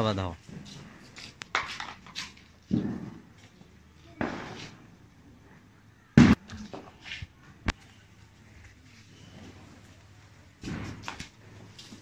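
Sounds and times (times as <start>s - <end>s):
firecracker bangs: 2.7s - 3.3s, 4.2s - 4.8s, 6.2s - 6.4s.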